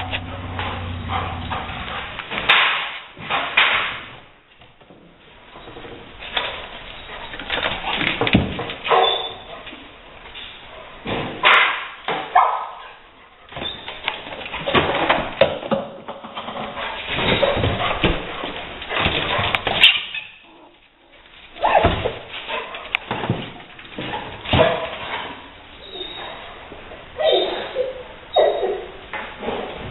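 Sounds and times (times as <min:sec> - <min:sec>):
dog barking and whining: 0:08.9 - 0:09.7, 0:12.3 - 0:13.0, 0:21.6 - 0:22.8, 0:25.8 - 0:29.0.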